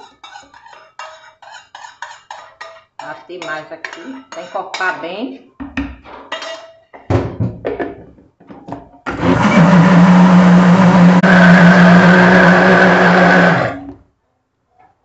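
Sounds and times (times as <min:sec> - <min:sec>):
blender running: 0:09.1 - 0:14.0.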